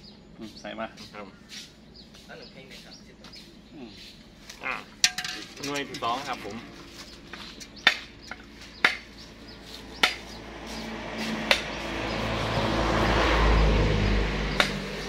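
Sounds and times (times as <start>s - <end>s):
machete knocking coconut: 7.9s - 9.1s, 10.0s - 10.3s, 11.3s - 11.8s, 14.6s - 15.0s.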